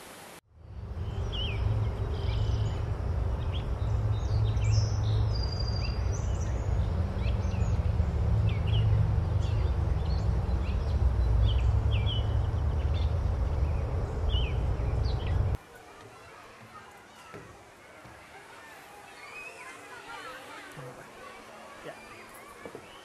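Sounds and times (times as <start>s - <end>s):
low rumble: 0.5s - 15.6s
birds chirping: 0.7s - 15.6s, 16.2s - 23.0s.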